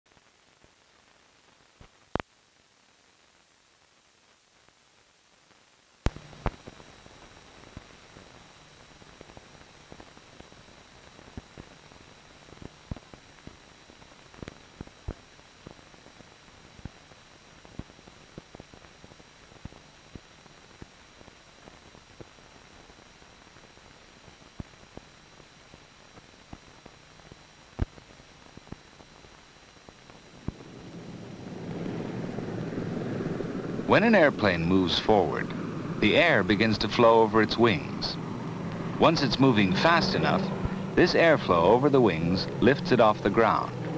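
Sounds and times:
film soundtrack hiss: 0:00.1 - 0:43.9
aircraft engine: 0:29.5 - 0:43.9.

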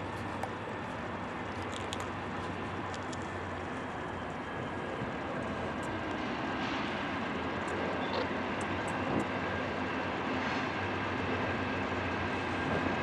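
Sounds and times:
distant diesel locomotives rumbling: 0:00.0 - 0:13.0.

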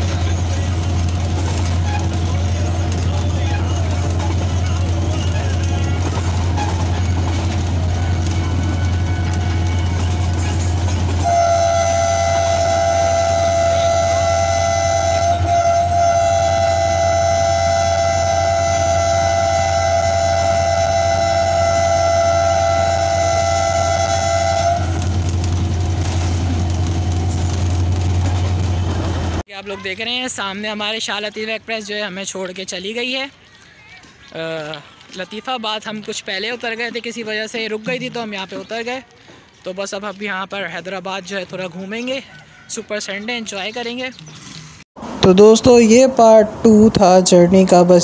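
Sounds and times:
diesel locomotive engine hum: 0:00.0 - 0:29.4, 0:45.0 - 0:48.0
locomotive horn blast: 0:07.8 - 0:10.4, 0:11.0 - 0:25.4.

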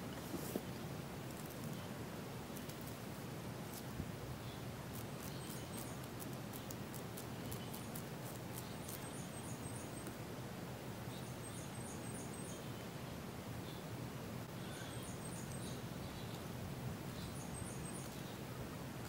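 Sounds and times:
faint bird chirping: 0:00.0 - 0:19.0
crackling ticks of skin peeling: 0:01.3 - 0:01.8, 0:02.5 - 0:03.0, 0:04.9 - 0:09.2.

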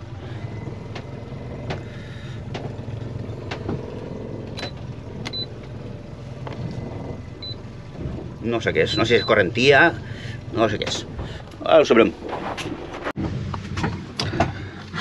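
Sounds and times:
boat engine idling: 0:00.0 - 0:15.0.

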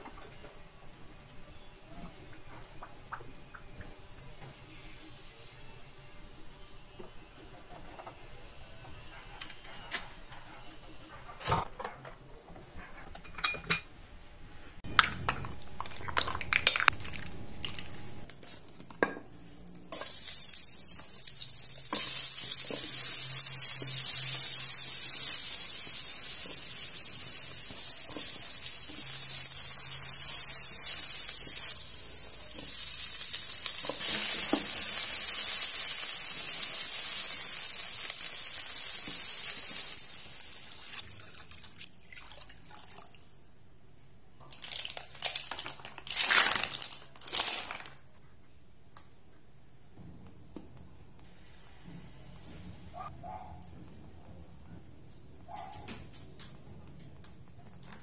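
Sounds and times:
dishes clinking in a sink: 0:13.1 - 0:13.9.

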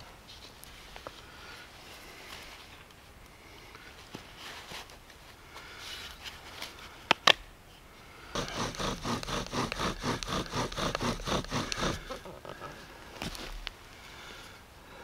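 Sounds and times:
bow drill rasping squeak: 0:08.4 - 0:12.7.

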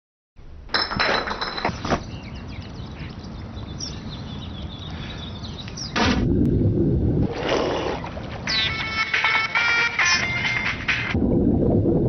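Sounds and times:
small birds chirping: 0:01.8 - 0:06.0.

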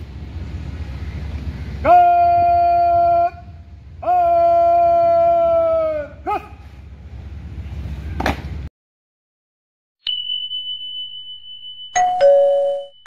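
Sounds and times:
descending doorbell chime: 0:10.0 - 0:13.0
steady high tone: 0:10.0 - 0:13.0.

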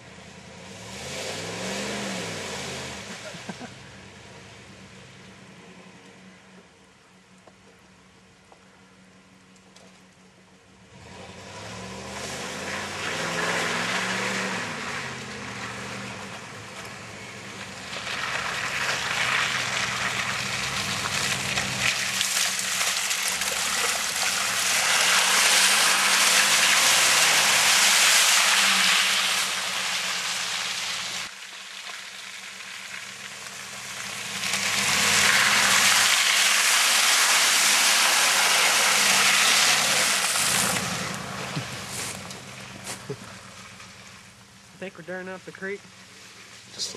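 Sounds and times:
pickup engine revving: 0:00.0 - 0:06.1, 0:10.8 - 0:31.3, 0:32.6 - 0:46.9
tyres spinning spraying mud: 0:10.9 - 0:44.1.

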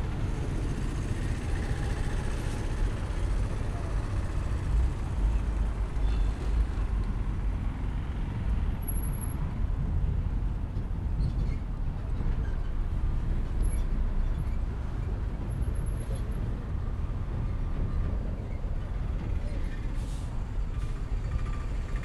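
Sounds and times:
road traffic rumble: 0:00.0 - 0:22.0.

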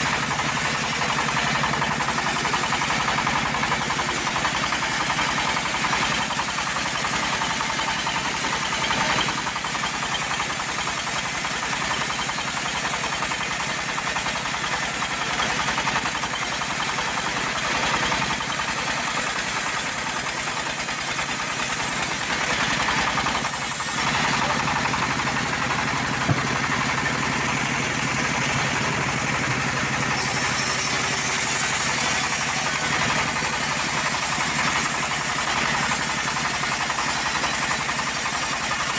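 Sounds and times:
band sawmill sawing log: 0:00.0 - 0:38.9.

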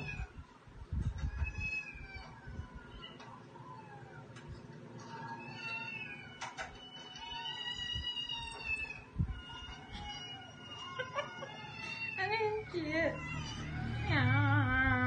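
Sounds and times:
cat meowing: 0:05.1 - 0:15.0.

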